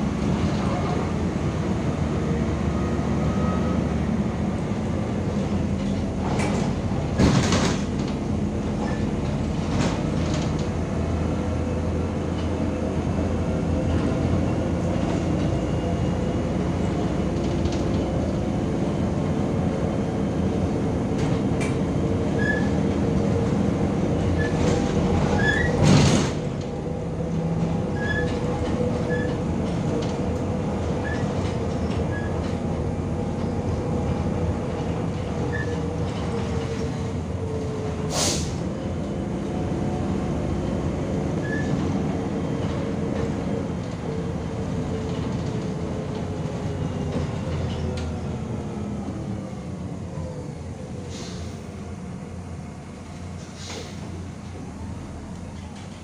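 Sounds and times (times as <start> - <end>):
bus engine and road rumble: 0.0 - 56.0
sharp knocks from bus body: 6.3 - 8.2.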